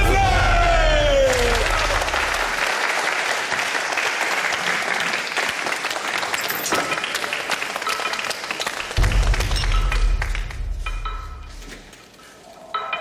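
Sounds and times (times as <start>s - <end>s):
people clapping: 0.0s - 11.4s.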